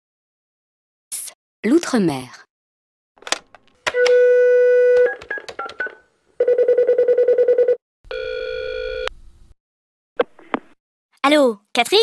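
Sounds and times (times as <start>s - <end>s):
telephone dial tone: 3.8s - 9.1s
phone ringing pulsing tone: 4.0s - 9.1s.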